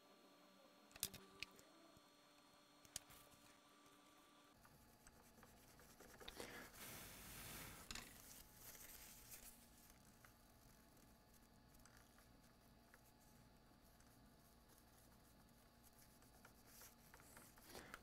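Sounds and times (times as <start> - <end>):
scratching on circuit board: 4.6 - 7.3, 8.2 - 18.0.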